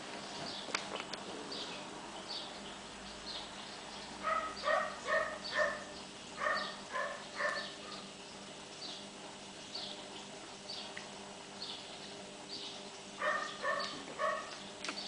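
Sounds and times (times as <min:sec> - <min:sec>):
animal yapping: 0:04.2 - 0:08.0, 0:13.2 - 0:14.6.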